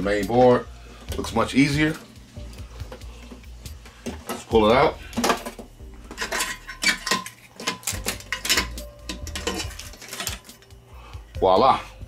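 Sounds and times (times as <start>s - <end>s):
metal bracket clinking and scraping: 5.1s - 10.7s.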